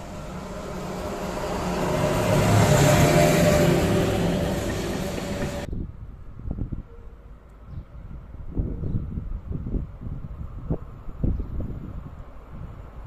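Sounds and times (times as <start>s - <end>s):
locomotive hum: 0.0s - 5.7s
train wheels rumbling on rails: 0.0s - 5.7s.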